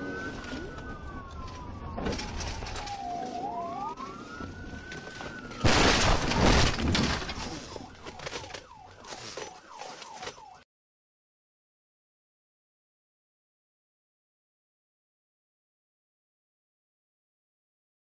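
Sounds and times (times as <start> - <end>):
road noise: 0.0 - 10.6
police siren wailing: 0.0 - 10.7
car crash: 5.6 - 8.4
debris clattering: 5.6 - 8.6.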